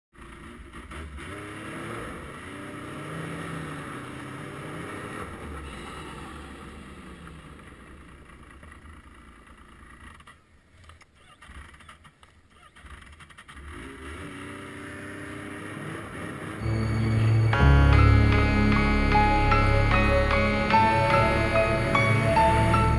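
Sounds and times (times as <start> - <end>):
snowmobile engine running: 14.6 - 22.9.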